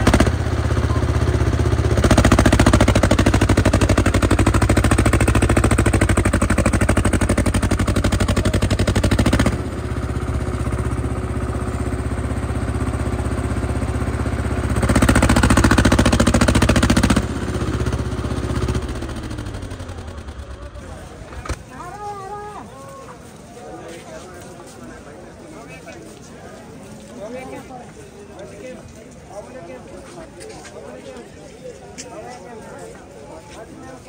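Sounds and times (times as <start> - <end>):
tractor diesel engine under load: 0.0 - 22.0.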